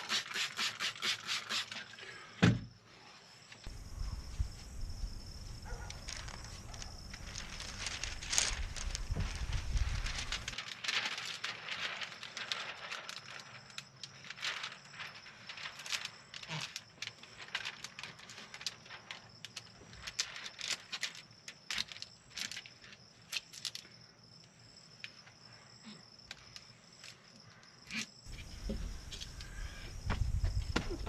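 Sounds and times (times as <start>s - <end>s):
high insect trill: 0.0s - 31.0s
plastic film crackling: 5.7s - 23.8s.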